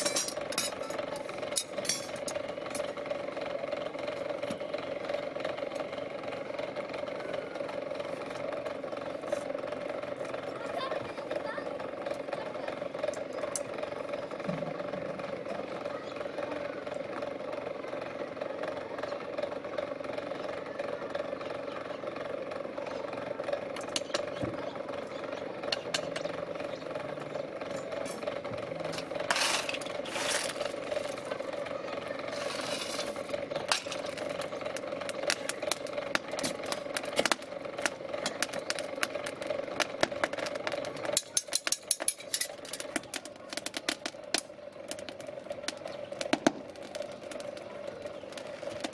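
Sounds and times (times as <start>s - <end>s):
metal tongs clinking and scraping: 0.0s - 1.0s, 1.6s - 2.4s, 29.0s - 30.6s, 41.2s - 42.8s
small motor humming: 21.6s - 48.9s.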